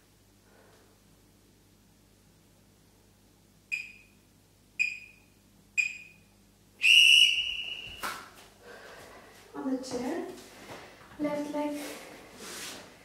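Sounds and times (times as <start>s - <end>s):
long timer beep: 3.7s - 4.2s, 4.8s - 6.2s
short timer beeps: 3.7s - 4.2s, 4.8s - 6.2s.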